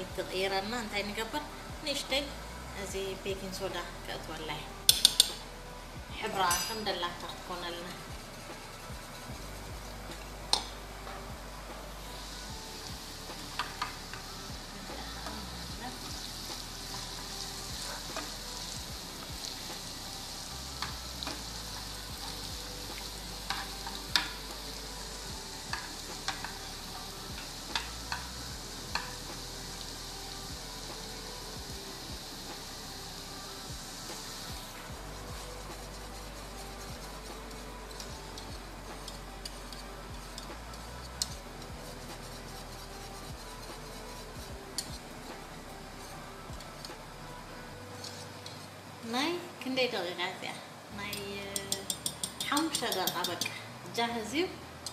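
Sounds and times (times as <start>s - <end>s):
food sizzling in oil: 0.0s - 50.0s, 50.8s - 53.9s
low hiss: 0.0s - 54.9s
wooden spoon scraping a pan: 0.2s - 32.7s, 48.0s - 48.9s
utensil ticking against pot: 4.9s - 5.4s, 12.0s - 46.9s, 47.5s - 48.6s, 51.1s - 53.6s.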